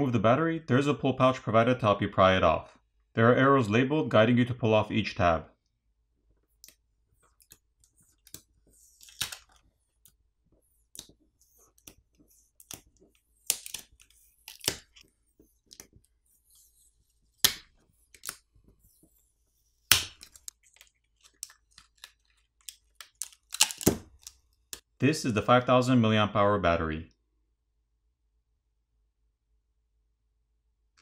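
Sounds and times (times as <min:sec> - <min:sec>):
adhesive pouch crackling: 0:07.3 - 0:09.7, 0:10.9 - 0:16.1, 0:19.9 - 0:24.5.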